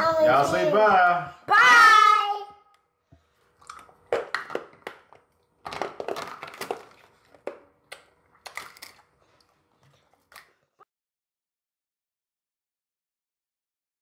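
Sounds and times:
plastic wrappers crinkling: 0:03.7 - 0:10.6.

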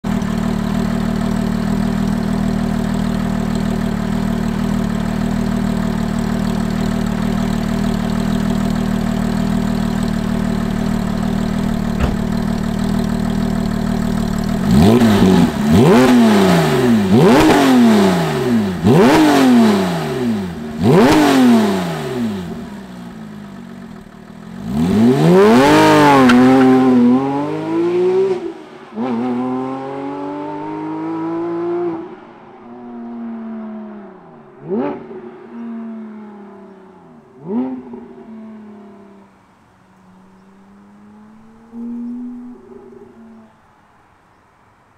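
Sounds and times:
sports car engine revving: 0:00.1 - 0:32.0.

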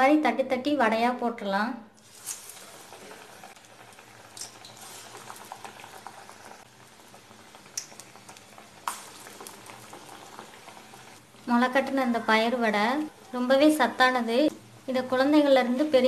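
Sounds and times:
oil popping: 0:02.0 - 0:11.4
batter deep-frying in oil: 0:02.0 - 0:16.0.

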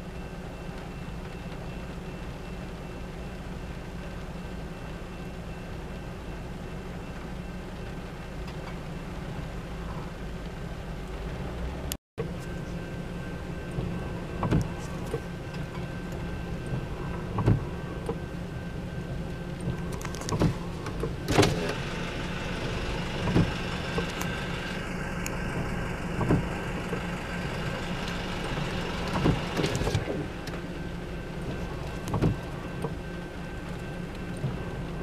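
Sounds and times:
car cabin rumble: 0:05.8 - 0:35.0
windshield wipers thumping: 0:13.7 - 0:18.3, 0:19.6 - 0:35.0.

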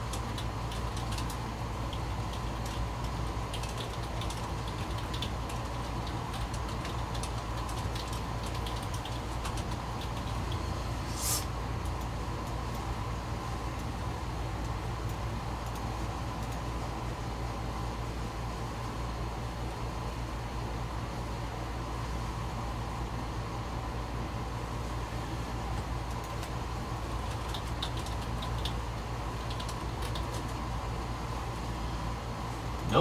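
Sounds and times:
computer keyboard clicking: 0:00.0 - 0:10.6, 0:15.1 - 0:16.6, 0:26.0 - 0:26.6, 0:27.2 - 0:28.8, 0:29.4 - 0:30.6
steady low hum: 0:00.0 - 0:33.0
brief hiss: 0:11.0 - 0:11.5.

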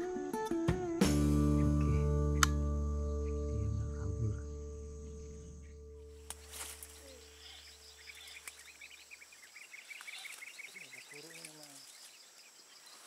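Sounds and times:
bird chirping: 0:01.4 - 0:13.0
low wavering sound: 0:01.7 - 0:06.2
insect whine: 0:03.2 - 0:13.0.

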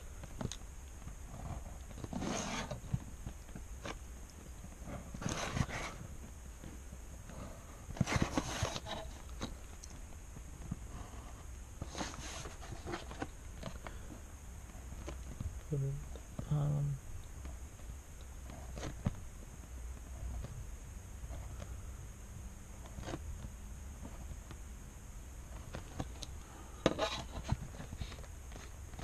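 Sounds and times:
pen scratching on paper: 0:02.1 - 0:02.8.

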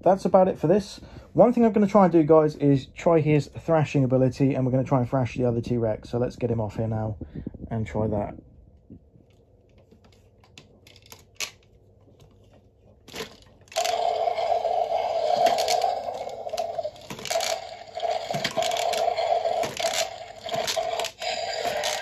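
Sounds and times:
plastic toy clicks: 0:13.1 - 0:22.0
electronic toy roar: 0:13.7 - 0:22.0.

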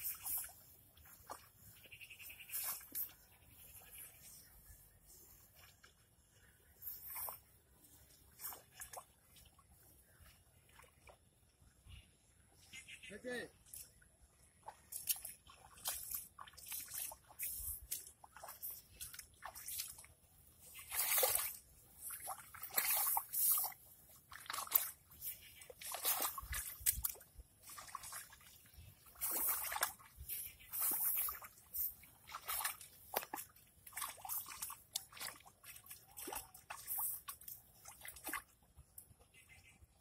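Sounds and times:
weeder sloshing through muddy water: 0:00.0 - 0:11.6, 0:13.5 - 0:40.0.

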